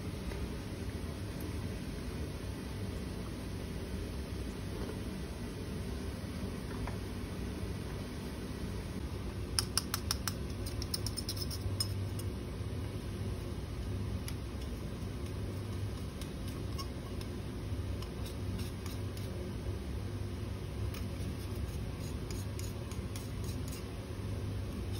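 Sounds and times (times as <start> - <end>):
steady low hum: 0.0 - 24.9
labware clicking and tapping: 9.5 - 12.3.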